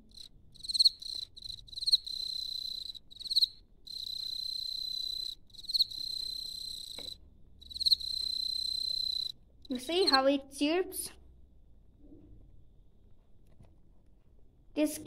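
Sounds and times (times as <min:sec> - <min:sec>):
cricket chirping and trilling: 0:00.0 - 0:10.2.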